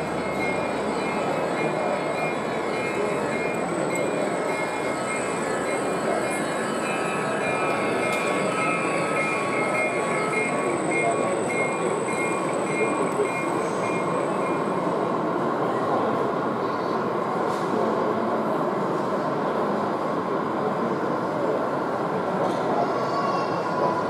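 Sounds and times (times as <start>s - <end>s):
short high tones: 0.0s - 14.7s
model train running: 0.0s - 16.2s
hubbub of voices: 0.0s - 24.0s.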